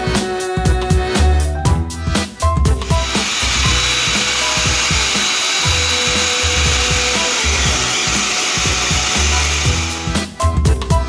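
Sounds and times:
pet dryer blowing air: 2.8s - 10.2s.

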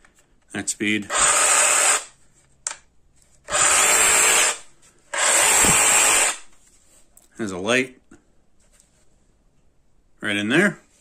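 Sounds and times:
reciprocating saw free-running: 1.1s - 2.1s, 3.5s - 4.6s, 5.2s - 6.5s.

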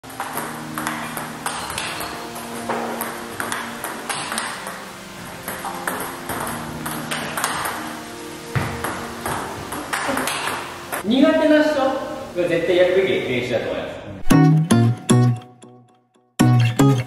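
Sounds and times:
background music: 0.0s - 17.0s
table tennis ball clicking: 0.2s - 4.7s, 5.5s - 7.8s, 8.8s - 11.0s.

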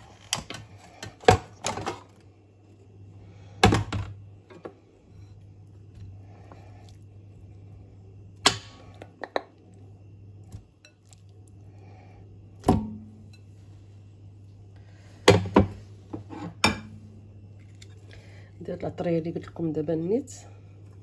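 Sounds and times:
low steady hum: 0.0s - 21.0s
meat thudding into pot: 3.6s - 4.2s, 8.4s - 9.4s.

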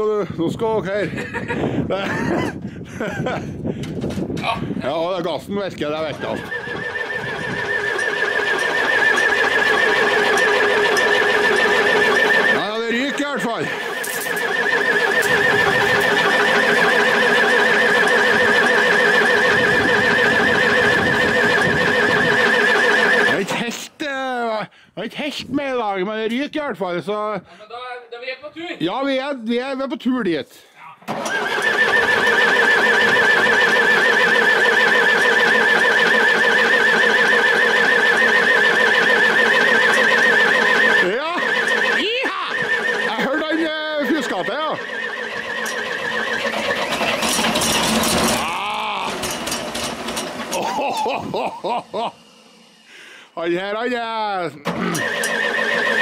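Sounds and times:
high-pitched warbling squeal: 5.8s - 23.6s, 31.2s - 49.7s, 54.7s - 56.0s
wavering high whine: 5.9s - 23.5s, 31.7s - 48.1s
diesel engine running: 6.0s - 23.5s, 31.1s - 53.3s, 54.7s - 56.0s.

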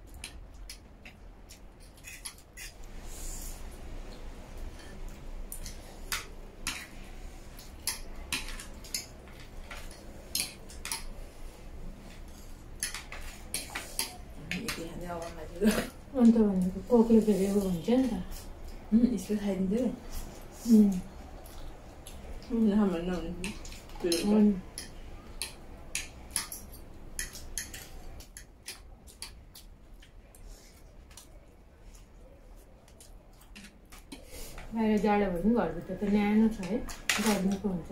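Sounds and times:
cutlery clinking on a steel tray: 23.4s - 29.4s, 36.6s - 37.7s
cutlery clinking on trays: 36.6s - 37.7s.

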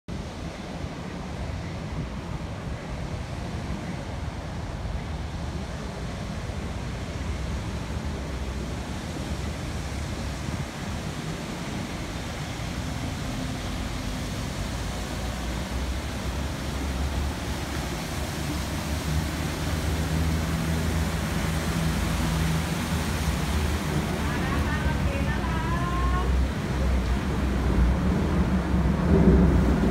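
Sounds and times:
boat diesel engine drone: 0.1s - 29.9s
water churning in wake: 0.1s - 29.9s.

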